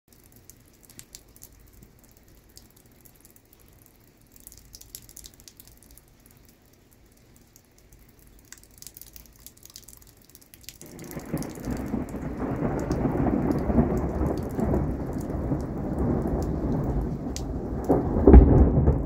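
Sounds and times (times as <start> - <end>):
raindrops ticking: 0.1 - 19.0
low thunder rumble: 10.8 - 19.0.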